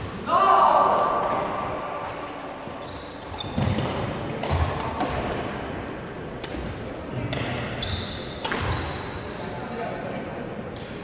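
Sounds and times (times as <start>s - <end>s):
shoe squeaks: 2.8s - 4.2s, 7.7s - 9.4s
racket hitting shuttlecock: 3.6s - 5.4s, 6.4s - 8.9s.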